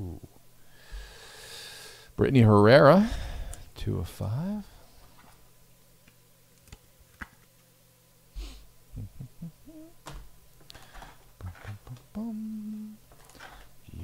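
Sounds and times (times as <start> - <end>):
man humming: 0.0 - 0.3, 8.4 - 14.0.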